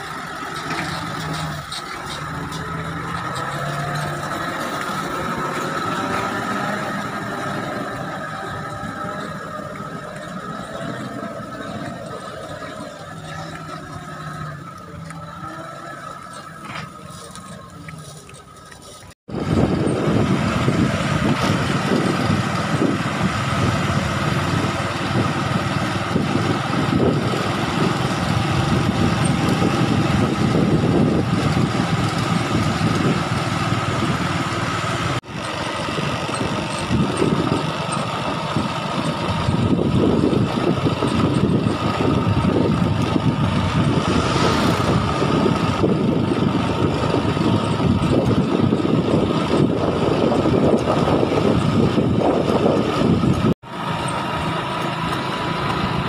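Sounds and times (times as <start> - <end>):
road noise rumbling: 0.0 - 56.0
vehicle engine running: 0.0 - 56.0
high whine: 39.5 - 48.4.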